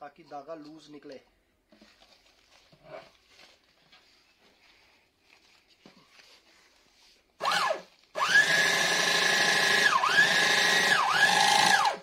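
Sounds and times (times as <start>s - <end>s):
sewing machine motor whine: 7.4s - 12.0s.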